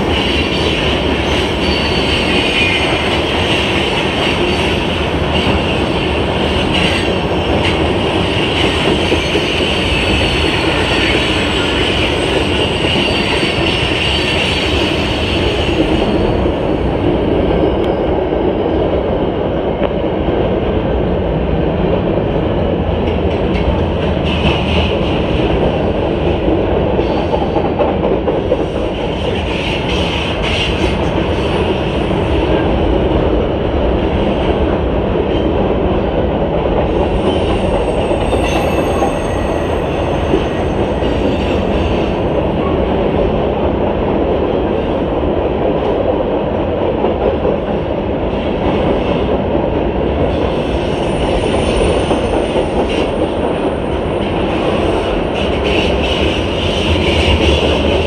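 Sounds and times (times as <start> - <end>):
train wheels rumbling on rail: 0.0 - 58.0
train wheel squeal: 0.1 - 3.3, 8.5 - 16.9, 37.1 - 42.8, 50.3 - 58.0.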